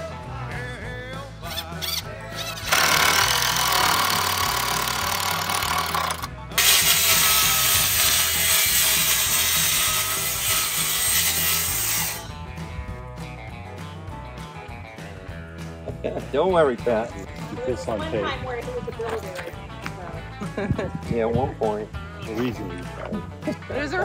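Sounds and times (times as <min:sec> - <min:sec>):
circular saw cutting plywood: 0:01.5 - 0:12.3.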